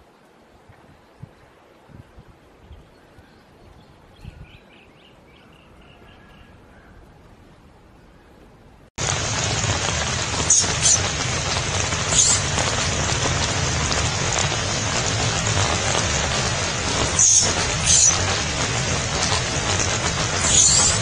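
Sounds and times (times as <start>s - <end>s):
loud rain-like hiss: 9.0s - 21.0s.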